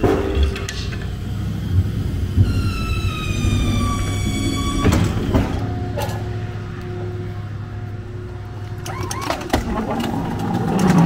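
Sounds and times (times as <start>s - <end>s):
clunks: 0.0s - 7.2s, 8.6s - 11.0s
hydraulic lift squealing: 2.4s - 6.3s, 8.8s - 9.8s.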